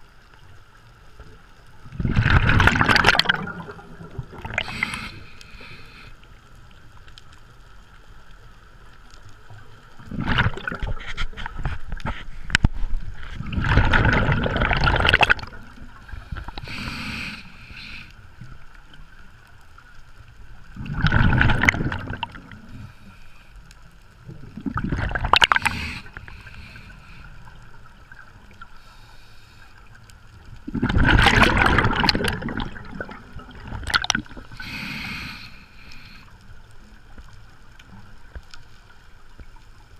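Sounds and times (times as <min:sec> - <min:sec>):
underwater breath bubbles gurgling: 0:01.8 - 0:06.2, 0:10.0 - 0:18.4, 0:20.7 - 0:23.5, 0:24.2 - 0:36.4.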